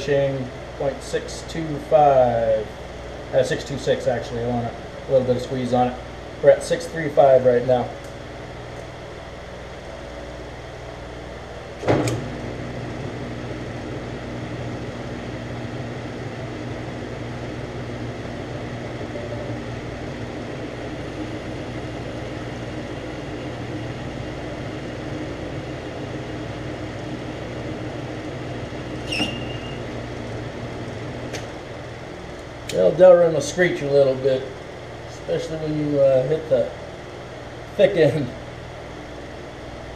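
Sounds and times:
metal lathe humming: 0:00.0 - 0:39.9
plastic screeching under tool: 0:29.0 - 0:29.9.

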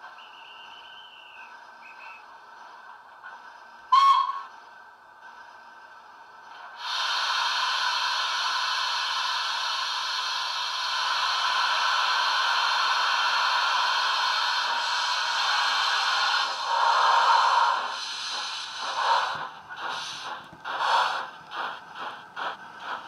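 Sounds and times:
model locomotive steam hiss: 0:05.3 - 0:23.0.

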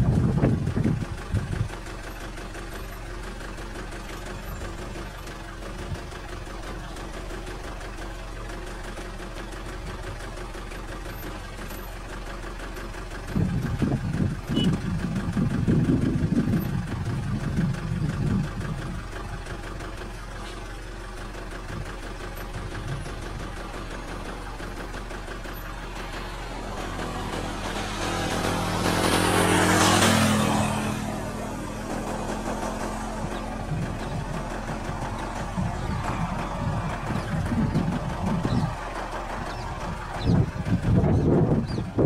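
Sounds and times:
car engine idling: 0:00.0 - 0:42.0
uneven low rumble: 0:31.3 - 0:42.0.

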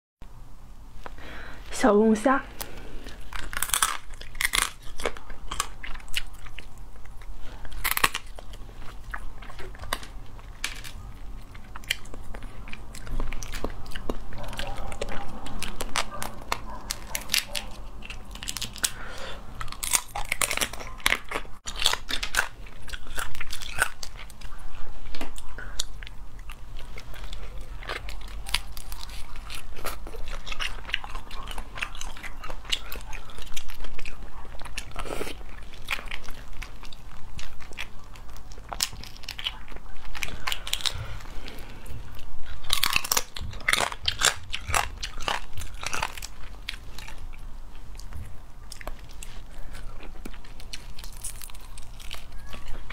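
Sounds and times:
wet chewing: 0:02.5 - 0:52.9
crayfish shells cracking: 0:02.6 - 0:24.5, 0:25.2 - 0:41.1, 0:42.2 - 0:47.4, 0:48.8 - 0:52.9.

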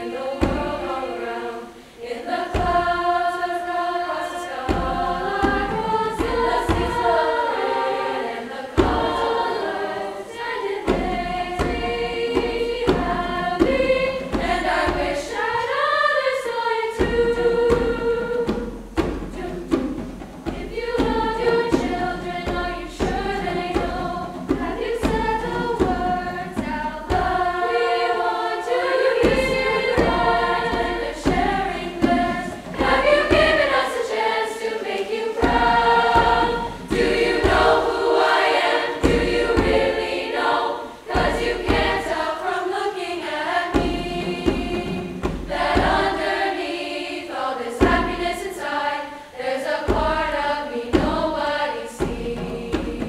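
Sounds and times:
choir singing in harmony: 0:00.0 - 0:53.0
hand drum beating: 0:00.4 - 0:01.0, 0:04.7 - 0:07.7, 0:08.8 - 0:09.7, 0:10.8 - 0:15.7, 0:17.0 - 0:34.1, 0:34.8 - 0:40.4, 0:41.1 - 0:42.6, 0:43.5 - 0:46.6, 0:47.8 - 0:48.6, 0:49.8 - 0:53.0.

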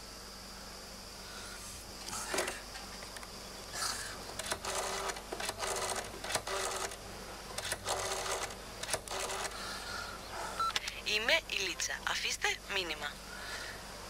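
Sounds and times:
rotary phone dial whirring and clicking: 0:02.3 - 0:03.2, 0:04.3 - 0:07.0, 0:07.6 - 0:09.7.

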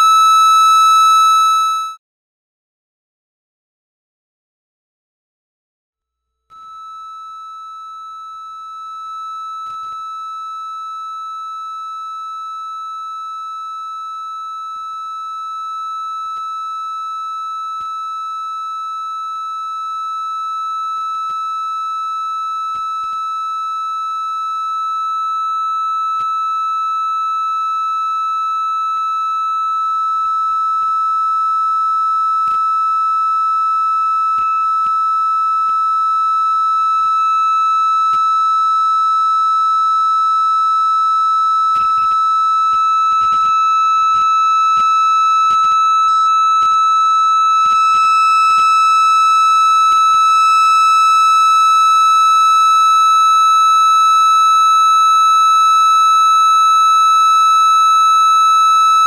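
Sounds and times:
electronic test tone: 0:00.0 - 0:02.0, 0:06.5 - 0:11.8, 0:24.4 - 0:59.0.

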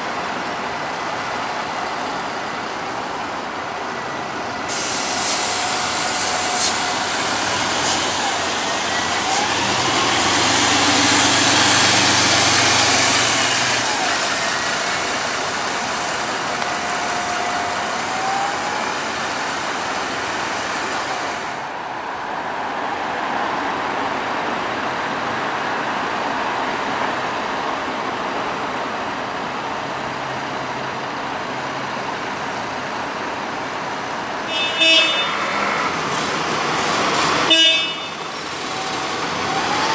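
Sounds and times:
bus diesel engines running: 0:00.0 - 0:39.9.

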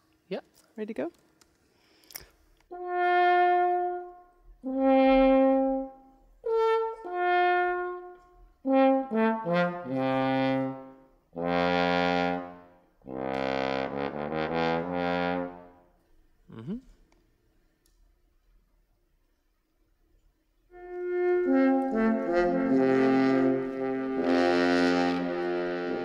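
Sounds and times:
french horn notes: 0:02.7 - 0:15.9, 0:20.7 - 0:26.0.

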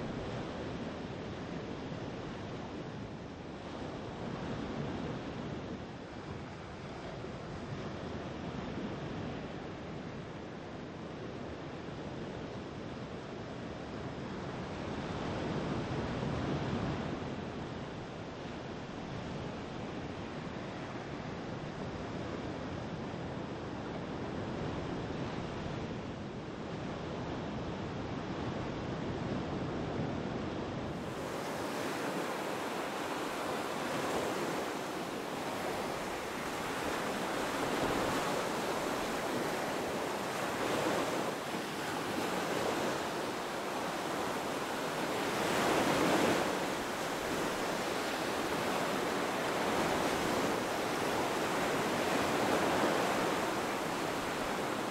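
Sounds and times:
wind blowing on microphone: 0:26.8 - 0:54.9.

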